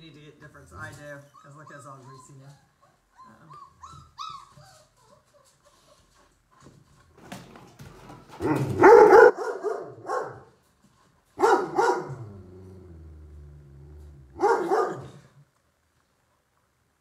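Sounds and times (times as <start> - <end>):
puppy barking: 8.4 - 10.6, 11.4 - 12.3, 14.4 - 15.3
puppy growling: 11.9 - 15.5.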